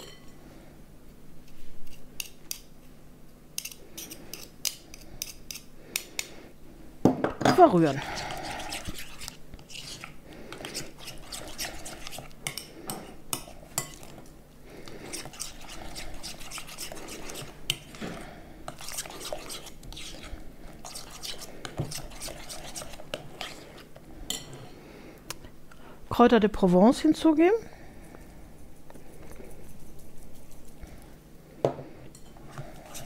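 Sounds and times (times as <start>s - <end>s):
utensil scraping glass bowl: 7.8s - 14.1s, 14.9s - 24.5s, 32.3s - 33.0s.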